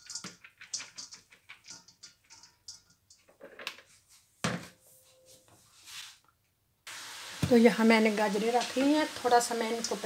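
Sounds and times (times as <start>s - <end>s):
faint metallic ring: 4.7s - 5.6s.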